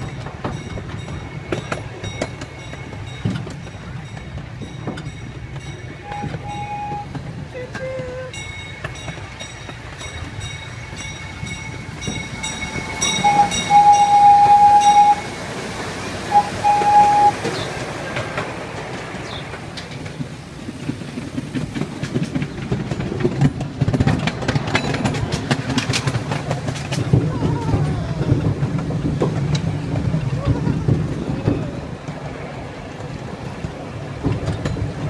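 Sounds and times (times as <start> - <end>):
miniature train rumbling: 0.0 - 35.0
wheels clacking over rail joints: 0.0 - 35.0
train horn toots: 6.0 - 8.4, 12.3 - 15.4, 16.2 - 17.7.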